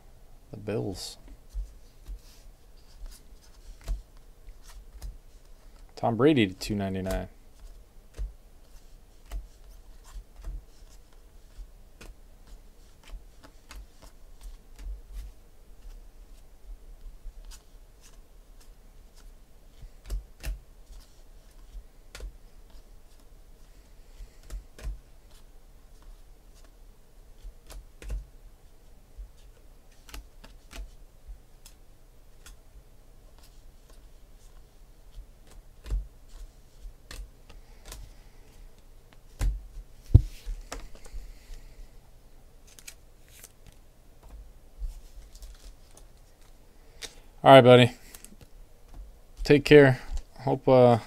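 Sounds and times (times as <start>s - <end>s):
trading cards clicking and snapping: 24.4s - 25.4s, 29.9s - 31.0s, 37.1s - 38.1s, 42.7s - 44.4s, 45.2s - 47.2s.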